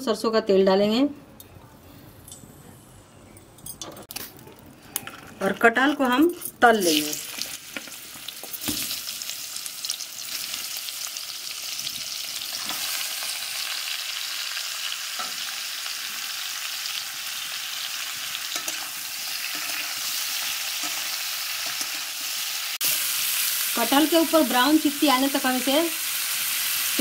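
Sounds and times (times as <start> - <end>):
food sizzling in hot oil: 5.6 - 27.0.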